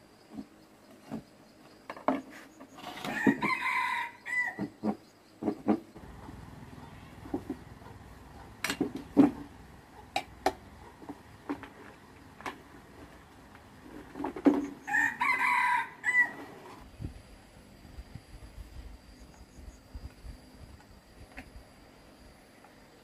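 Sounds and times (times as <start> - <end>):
rooster crowing: 3.0 - 4.7, 14.8 - 16.8.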